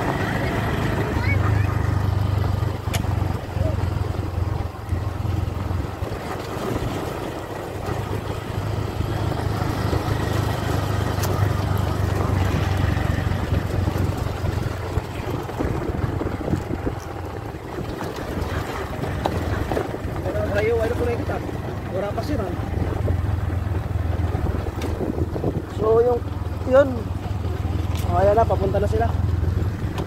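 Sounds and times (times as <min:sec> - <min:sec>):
auto-rickshaw engine running: 0:00.0 - 0:30.0
rattles from bumpy ride: 0:00.0 - 0:30.0
wind on microphone: 0:02.7 - 0:26.0.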